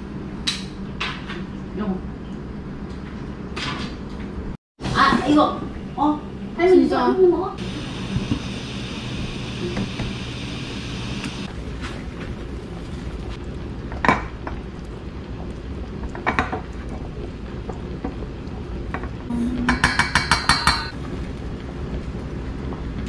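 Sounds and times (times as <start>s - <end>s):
kitchenware clinking: 19.6s - 21.0s.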